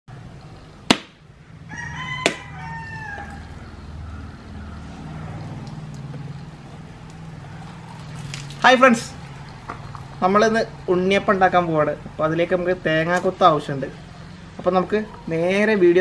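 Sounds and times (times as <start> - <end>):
knife striking coconut shell: 0.9 - 1.2, 2.2 - 2.5
rooster crowing: 1.4 - 5.5.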